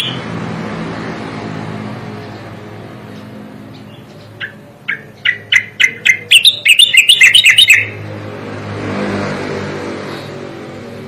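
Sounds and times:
bird song rattling warble: 2.2 - 8.0.

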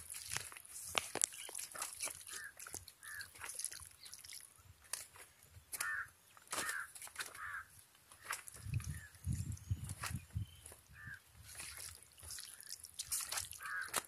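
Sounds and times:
hand squelching mixing chicken: 0.0 - 7.6, 8.2 - 14.0
crows cawing: 2.2 - 3.5, 5.7 - 8.4, 10.9 - 11.2, 13.5 - 14.0.

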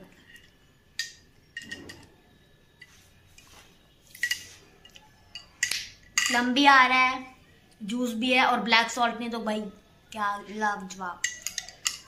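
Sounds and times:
metal straw clinking against glass: 11.2 - 12.0.

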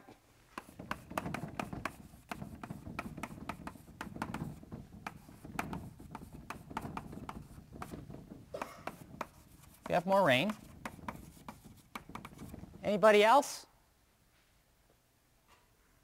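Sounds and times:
pen strokes writing by hand: 0.6 - 12.7.

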